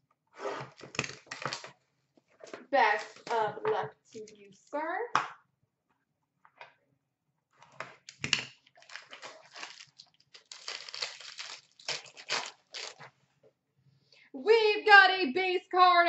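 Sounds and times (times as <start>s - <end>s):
plastic wrapping crinkling and tearing: 0.7s - 1.8s, 2.7s - 3.4s, 8.0s - 13.1s.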